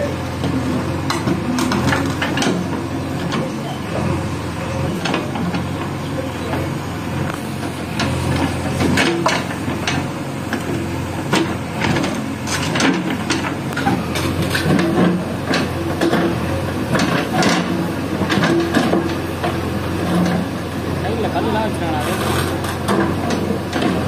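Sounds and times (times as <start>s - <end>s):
diesel engine under load: 0.0s - 24.0s.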